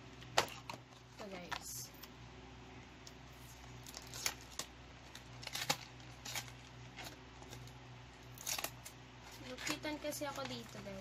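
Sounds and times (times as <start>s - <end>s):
low steady hum: 0.0s - 11.0s
plastic packaging crinkling: 3.4s - 11.0s.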